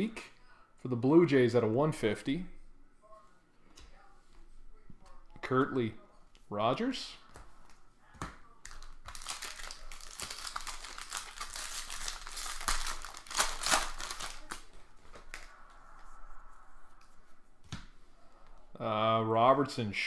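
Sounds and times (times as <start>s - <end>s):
wrapper crinkling and tearing: 8.6s - 15.5s.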